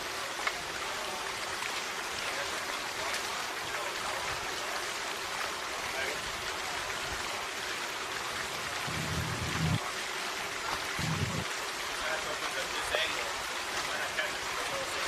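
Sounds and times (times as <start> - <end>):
rushing rain-like hiss: 0.0 - 15.0
short low hums: 8.8 - 9.8, 11.0 - 11.4.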